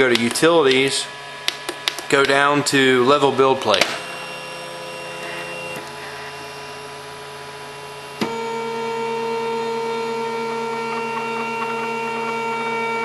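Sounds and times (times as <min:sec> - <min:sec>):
printer stepper motors whining: 0:00.0 - 0:13.0.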